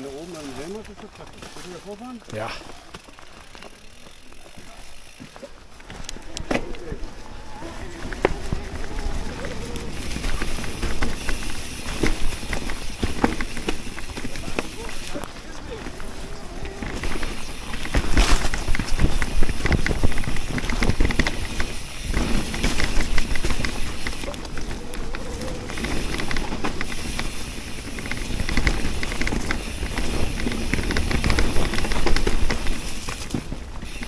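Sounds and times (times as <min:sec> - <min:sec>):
bike rattling and clicking: 0:00.0 - 0:34.0
tyres rolling over leaves: 0:00.0 - 0:34.0
wind rumble on microphone: 0:18.0 - 0:23.7.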